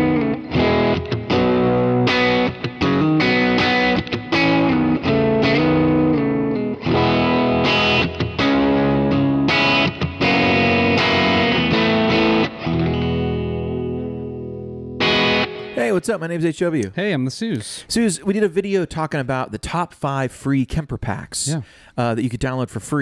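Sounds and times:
electric guitar chords ringing: 0:00.0 - 0:16.1.

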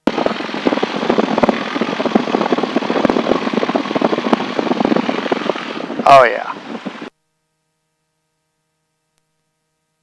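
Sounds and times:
piston aircraft engine droning: 0:00.0 - 0:07.1.

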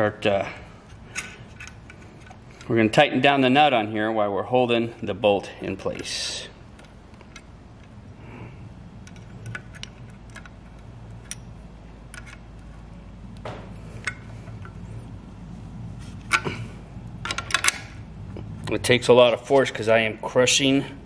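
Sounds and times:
steady low hum: 0:00.0 - 0:21.0
wrench clicking on a nut: 0:09.0 - 0:11.5, 0:12.1 - 0:12.4.

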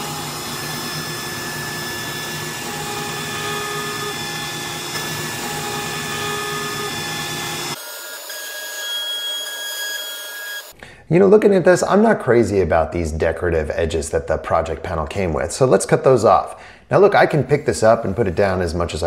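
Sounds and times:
bit cutting wood: 0:00.0 - 0:10.7
router spindle whine: 0:00.0 - 0:10.7.

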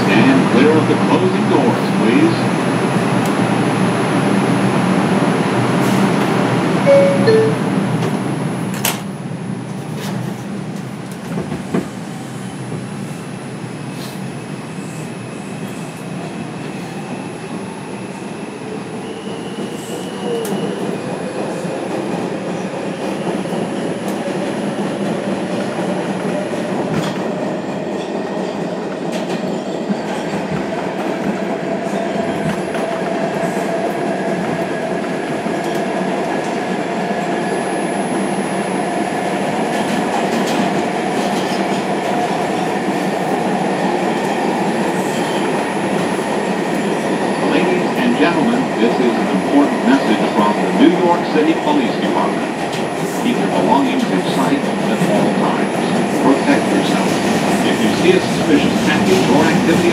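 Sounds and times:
train wheels rumbling on rail: 0:00.0 - 0:59.9
rail joint clicks: 0:06.9 - 0:09.1.

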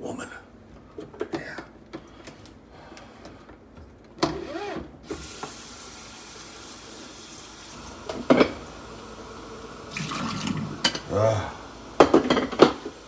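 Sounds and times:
water running into sink: 0:05.1 - 0:13.0.

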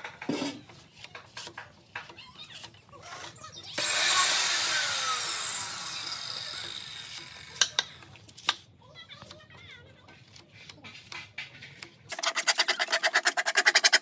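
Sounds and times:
light scrapes and taps: 0:00.0 - 0:03.4, 0:10.0 - 0:14.0
power tool running: 0:03.8 - 0:08.0.

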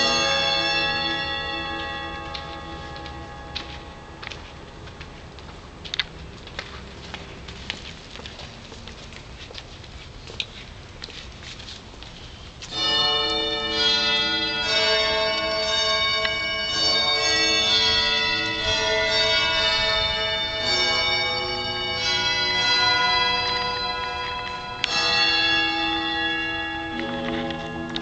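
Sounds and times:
bell-like ring: 0:00.0 - 0:04.3
slow solemn music: 0:24.4 - 0:28.0.

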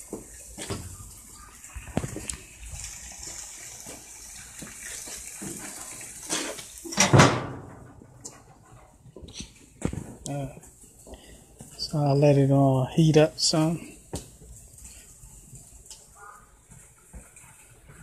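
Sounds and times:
steaks sizzling on a grill: 0:00.0 - 0:07.0
grill lid clunk: 0:06.3 - 0:08.1.

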